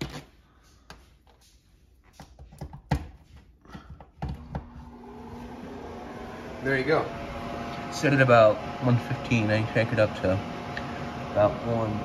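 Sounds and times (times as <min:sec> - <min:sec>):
fan motor humming: 0:03.7 - 0:12.0.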